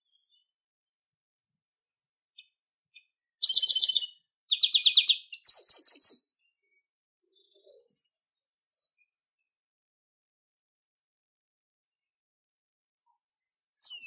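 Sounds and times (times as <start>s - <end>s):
bird singing trilled phrases: 0.0s - 0.5s, 1.8s - 9.6s, 13.0s - 14.0s
soft bird calls: 1.9s - 9.6s
faint bird chips: 3.4s - 6.2s.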